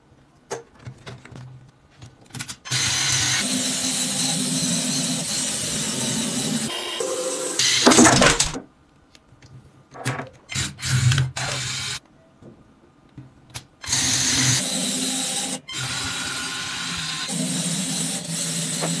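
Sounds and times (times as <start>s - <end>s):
plastic parts clicking together: 0.5s - 2.7s.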